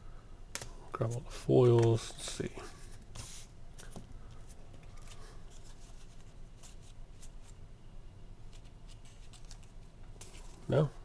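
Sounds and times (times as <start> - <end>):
trading cards being flicked: 1.6 - 2.0.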